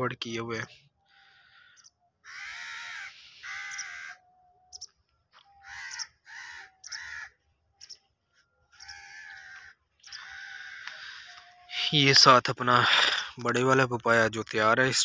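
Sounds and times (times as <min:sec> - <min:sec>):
crow cawing: 0:01.0 - 0:07.9, 0:08.7 - 0:11.7.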